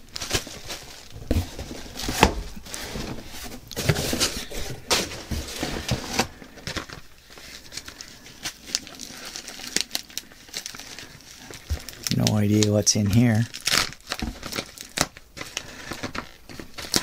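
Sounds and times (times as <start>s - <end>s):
cardboard rustling and scraping: 0.0s - 9.8s.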